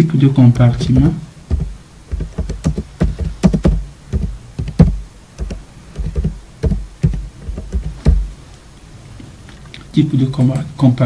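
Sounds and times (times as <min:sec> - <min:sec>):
keyboard typing: 0:00.8 - 0:08.2.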